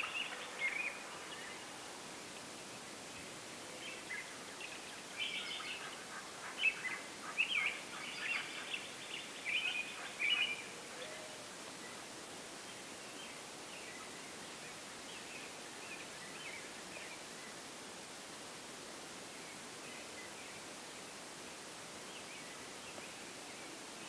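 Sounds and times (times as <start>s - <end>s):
faint hiss: 0.0s - 24.0s
birds chirping: 2.7s - 12.1s.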